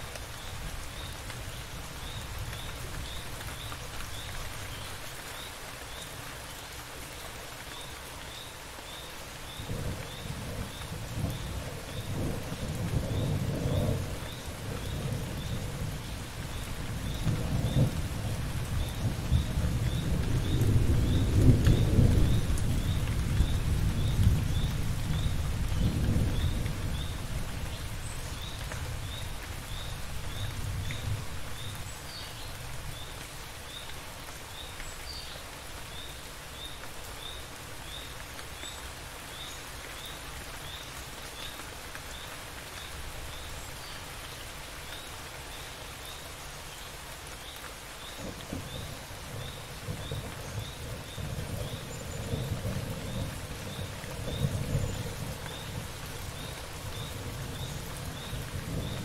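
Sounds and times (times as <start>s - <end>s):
steady rain: 0.0s - 59.0s
thunder rumbling: 48.2s - 59.0s.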